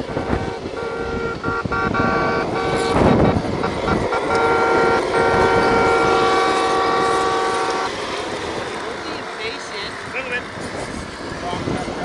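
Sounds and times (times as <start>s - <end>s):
electric motors whining: 0.0s - 12.0s
rough low rumble of wind: 0.0s - 12.0s.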